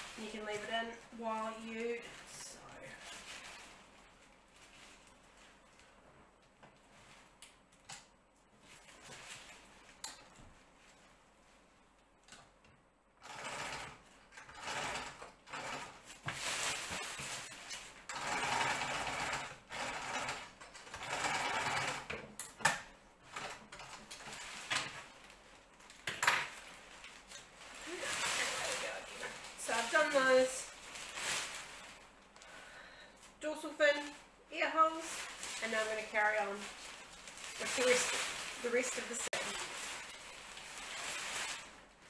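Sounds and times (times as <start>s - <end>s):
sewing machine stitching: 13.2s - 16.1s, 18.1s - 22.3s
fabric handling: 26.5s - 32.4s, 33.9s - 42.0s.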